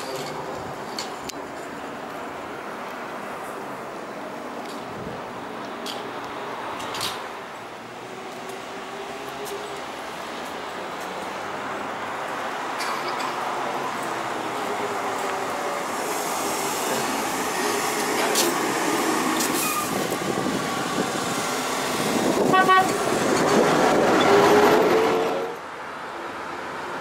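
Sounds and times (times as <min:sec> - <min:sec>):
trolleybus running: 0:00.0 - 0:27.0
tyre and road noise: 0:00.0 - 0:27.0
sharp horn-like tone: 0:19.6 - 0:20.0.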